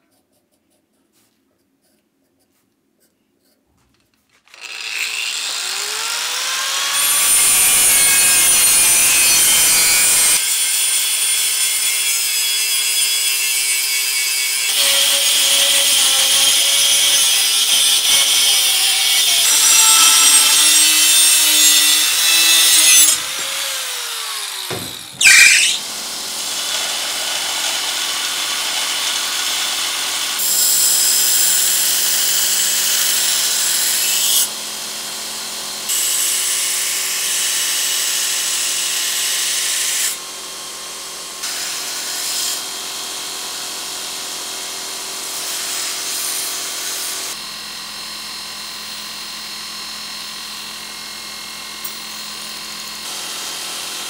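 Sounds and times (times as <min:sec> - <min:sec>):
belt grinder grinding steel: 0:04.5 - 0:10.4, 0:13.4 - 0:25.8
angle grinder cutting steel: 0:04.5 - 0:34.5.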